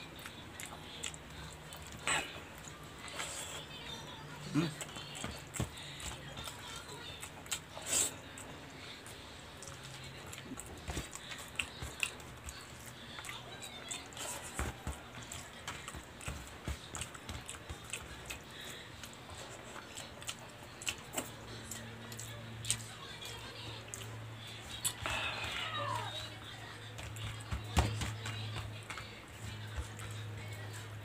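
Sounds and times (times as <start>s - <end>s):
wet chewing and lip smacks: 0.2s - 3.4s, 9.5s - 22.9s.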